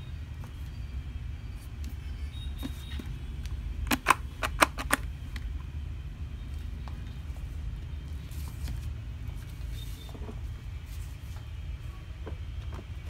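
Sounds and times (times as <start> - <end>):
steady low hum: 0.0 - 13.0
sharp plastic clicks: 3.4 - 5.5.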